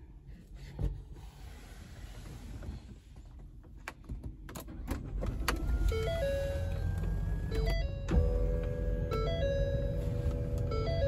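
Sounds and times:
car engine rumble: 0:00.0 - 0:11.0.

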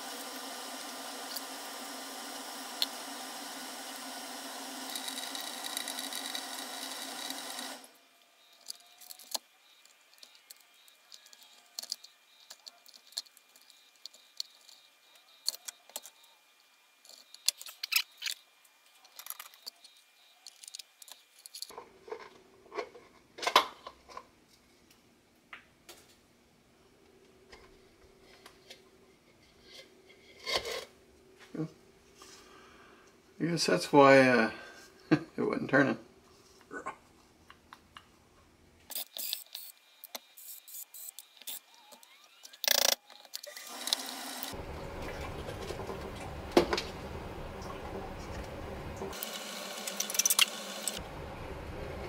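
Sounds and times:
steady hum: 0:44.6 - 0:52.0.

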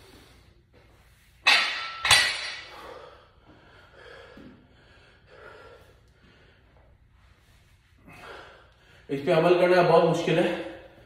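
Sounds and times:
barbell metal clanks: 0:01.4 - 0:02.7
iron plates ringing: 0:01.4 - 0:02.7
heavy breathing: 0:02.6 - 0:09.2.

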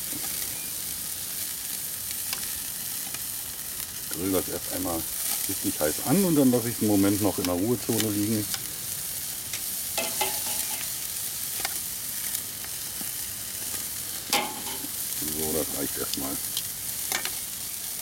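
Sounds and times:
meat sizzling on a grill: 0:00.0 - 0:18.0
metal tongs clicking on grate: 0:09.5 - 0:10.9, 0:16.1 - 0:17.4.

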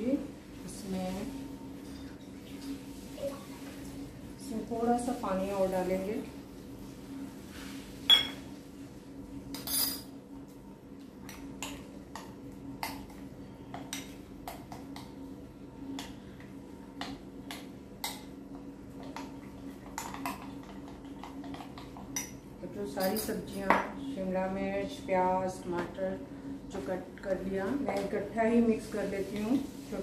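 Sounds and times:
steady low hum: 0:00.0 - 0:30.0
spoon clinking and scraping glass bowl: 0:08.1 - 0:08.4.

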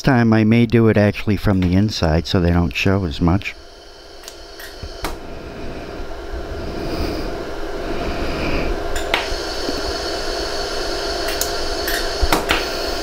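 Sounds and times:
machine humming: 0:01.2 - 0:13.0
laser welder snaps: 0:09.0 - 0:09.4, 0:11.3 - 0:12.8.

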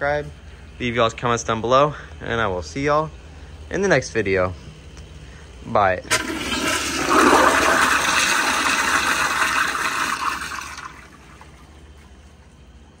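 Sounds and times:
toilet flushing: 0:06.1 - 0:12.5.

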